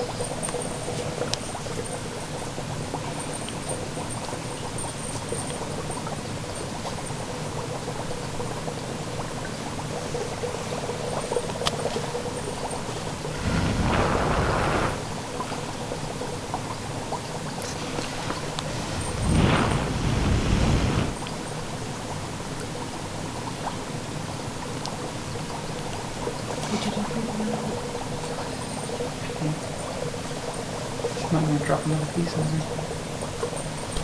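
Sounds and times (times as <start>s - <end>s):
dry ice fizzing and crackling: 9.9s - 15.1s
low rushing gusts: 13.3s - 15.1s, 18.7s - 21.2s.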